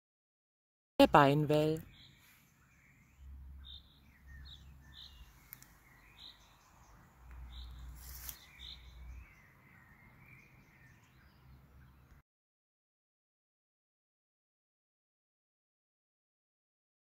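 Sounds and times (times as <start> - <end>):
small birds chirping: 1.1 - 12.2.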